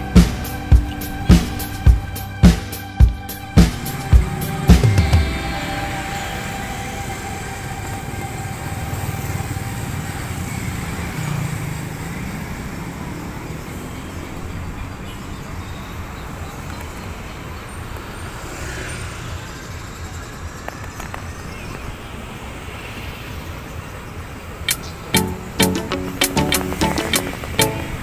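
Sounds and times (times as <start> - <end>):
motorcycles and cars passing: 0.0 - 28.0.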